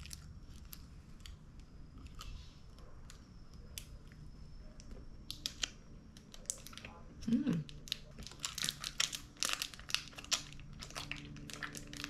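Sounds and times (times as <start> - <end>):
plastic wrapper crinkling: 0.0 - 1.4, 5.3 - 12.0
chewing chocolate bar: 7.5 - 12.0.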